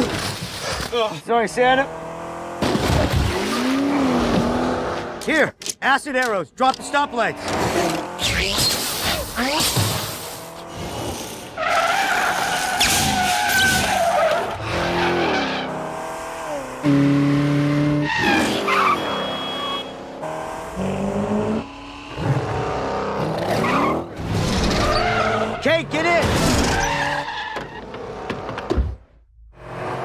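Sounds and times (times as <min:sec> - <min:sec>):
car engines revving: 0:00.9 - 0:05.6, 0:06.6 - 0:30.0
tyres squealing and skidding: 0:06.8 - 0:28.6.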